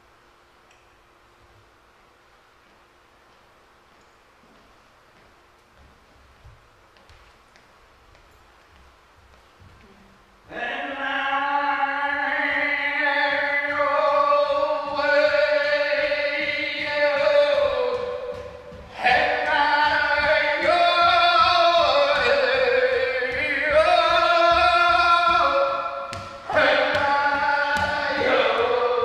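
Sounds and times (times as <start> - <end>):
person singing overtone drone: 9.9 - 29.0.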